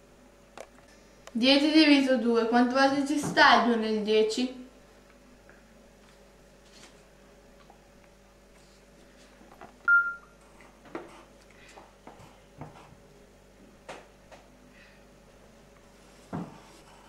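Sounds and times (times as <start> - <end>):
steady low hum: 0.0 - 17.0
short high electronic beep: 9.9 - 10.3.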